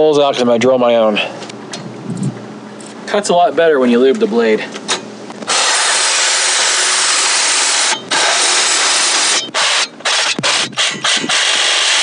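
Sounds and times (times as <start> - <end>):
reciprocating saw cutting metal: 5.5 - 12.0.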